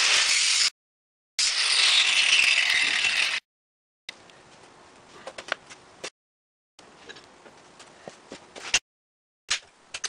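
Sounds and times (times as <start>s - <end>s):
angle grinder cutting steel: 0.0s - 0.7s, 1.4s - 3.4s.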